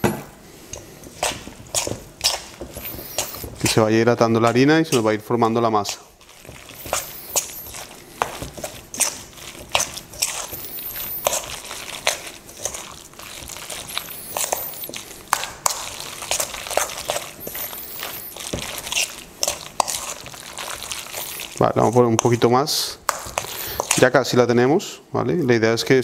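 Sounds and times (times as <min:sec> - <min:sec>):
wet batter squishing: 0:00.6 - 0:24.4
spoon scraping metal bowl: 0:00.7 - 0:03.9, 0:05.8 - 0:22.4.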